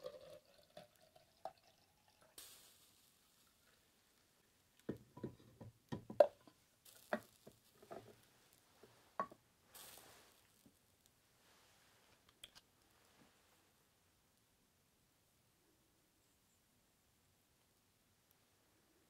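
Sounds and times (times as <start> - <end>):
short soft hisses: 8.3 - 10.6.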